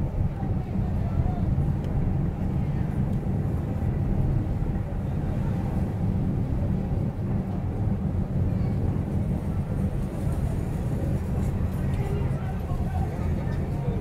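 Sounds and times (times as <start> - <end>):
car engine and tyre rumble: 0.0 - 14.0.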